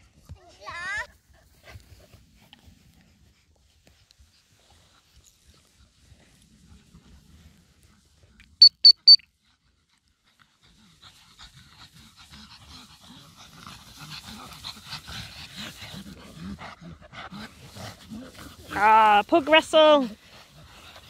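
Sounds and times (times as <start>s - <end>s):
short high beeps: 8.6s - 9.3s
dogs panting: 9.3s - 21.0s.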